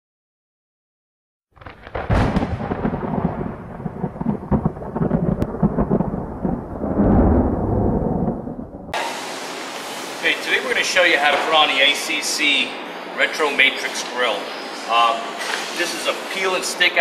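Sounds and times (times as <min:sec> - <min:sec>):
rolling thunder rumble: 0:01.6 - 0:09.0.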